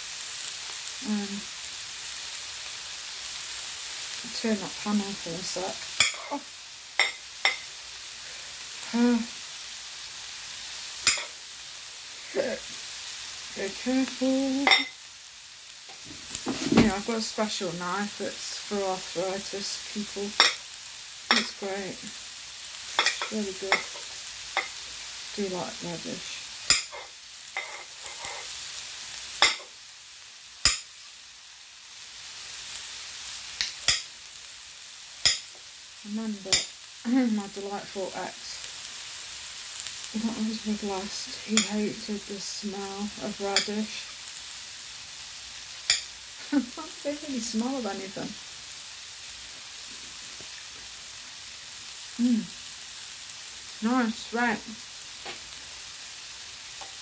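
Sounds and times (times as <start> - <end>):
frying pan sizzling: 0.0 - 57.0
steady hiss: 0.0 - 57.0
person humming: 52.2 - 52.6.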